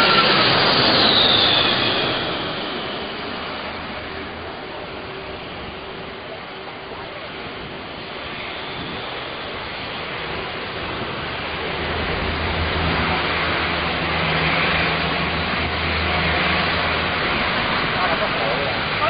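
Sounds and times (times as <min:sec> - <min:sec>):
jet airliner engines rushing: 0:00.0 - 0:19.0
low drone: 0:00.0 - 0:19.0.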